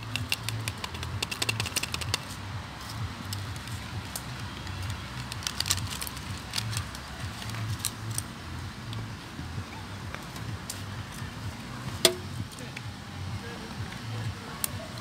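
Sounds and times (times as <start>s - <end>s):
plastic sachet crinkling: 0.0s - 2.4s, 3.3s - 8.2s.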